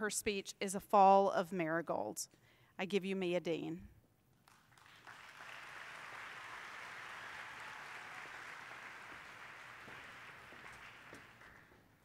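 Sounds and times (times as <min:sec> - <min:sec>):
faint audience applause: 0:04.4 - 0:12.0.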